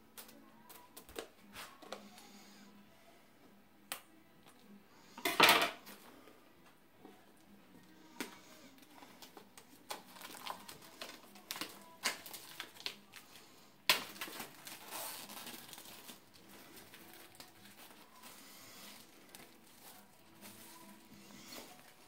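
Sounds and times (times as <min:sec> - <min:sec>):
loose plastic film crinkling: 0:08.1 - 0:22.0
plastic shrink wrap crackling: 0:08.8 - 0:22.0
sharp plastic crack: 0:09.2 - 0:13.1, 0:13.8 - 0:16.2.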